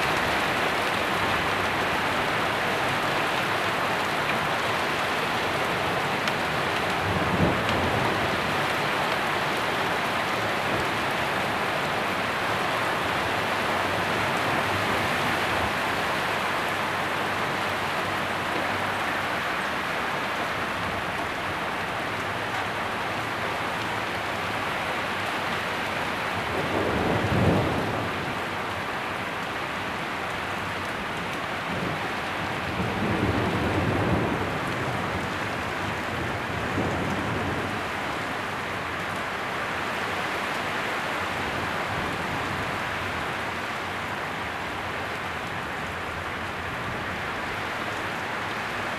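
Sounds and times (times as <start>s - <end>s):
heavy rain downpour: 0.0s - 48.9s
low thunder rumbles: 26.4s - 28.6s, 31.6s - 38.1s.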